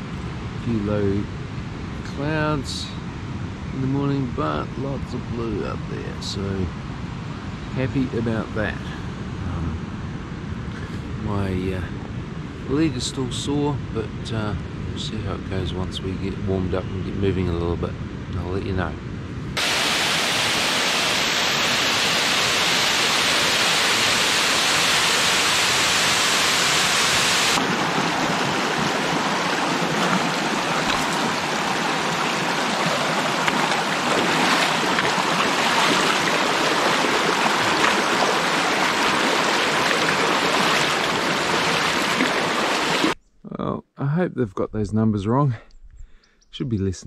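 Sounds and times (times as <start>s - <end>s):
stream running over rock: 19.6s - 43.2s
waterfall rushing: 19.6s - 43.2s
boots wading through water: 28.1s - 43.2s.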